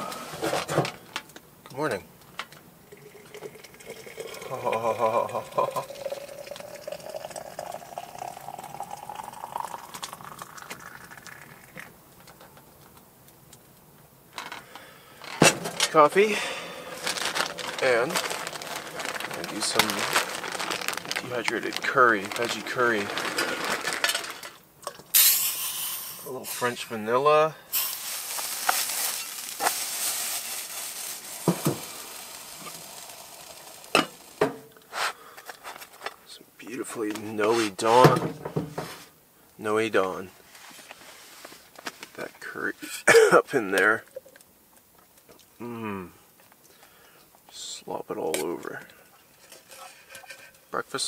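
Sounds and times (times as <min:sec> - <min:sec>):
water pouring into container: 0:02.9 - 0:11.8, 0:27.7 - 0:34.4.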